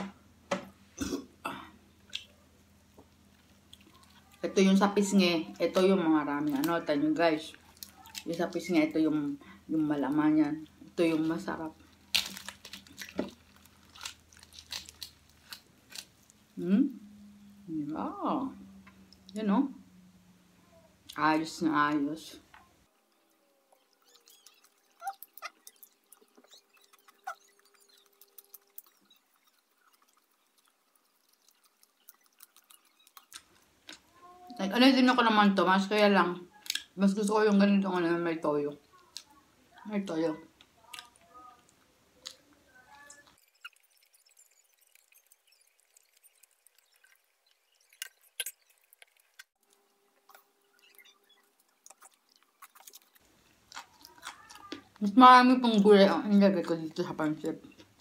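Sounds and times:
crunchy chewing: 3.1 - 4.5, 7.5 - 8.4, 11.8 - 16.6, 22.9 - 34.3, 40.6 - 55.0.

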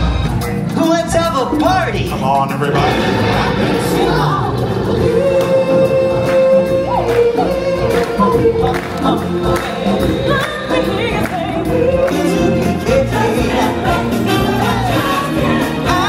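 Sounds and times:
choir singing over band track: 2.6 - 16.0.

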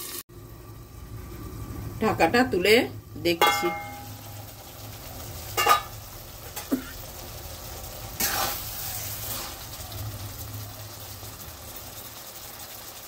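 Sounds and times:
curry sizzling: 0.0 - 13.0
metal pan lid clanking: 3.4 - 4.2, 5.6 - 6.0
spatula scraping in pan: 8.2 - 9.8.

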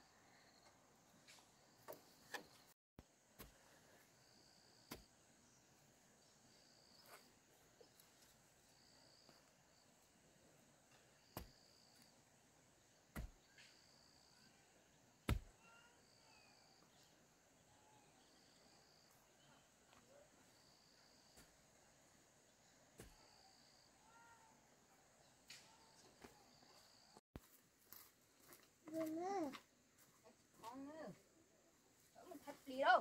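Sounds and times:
high insect hum: 3.6 - 27.2
faint bird calls: 15.5 - 20.3, 23.0 - 27.2.

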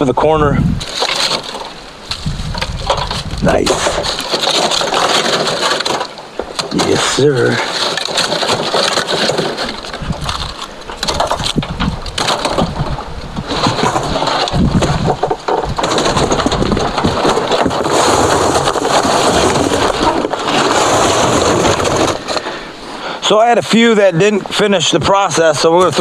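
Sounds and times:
charcoal clattering against steel drum: 2.5 - 22.5.

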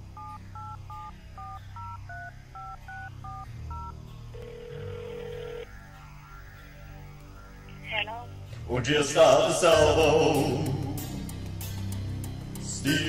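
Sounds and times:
long steady phone tone: 0.1 - 5.7
touch-tone keypad beeps: 0.2 - 5.6.

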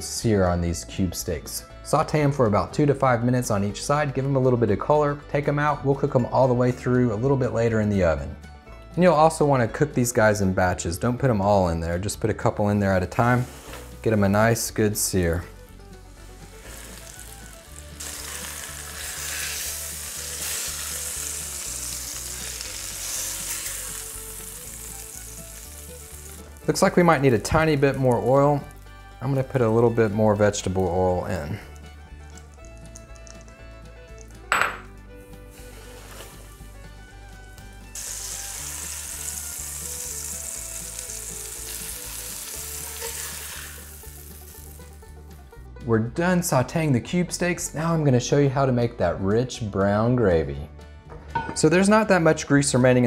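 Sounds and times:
quiet background music: 0.0 - 53.0
steaks sizzling in hot grease: 13.1 - 45.6.

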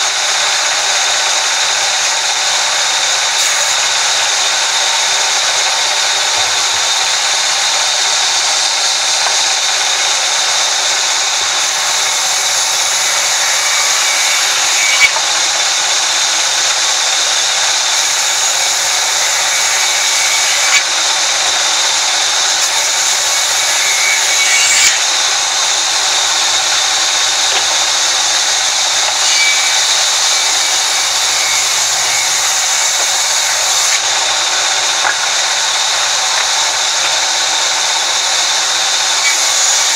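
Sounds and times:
band saw cutting timber: 0.0 - 39.9.

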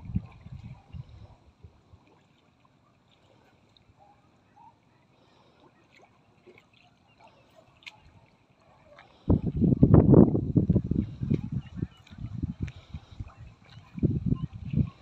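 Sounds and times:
muddy water sloshing: 0.0 - 15.0
deep splashes: 5.1 - 15.0.

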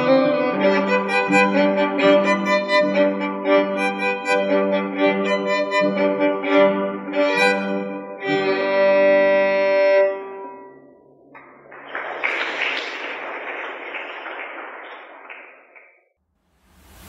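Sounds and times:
solo violin playing: 0.0 - 10.8
people clapping: 11.3 - 16.2.

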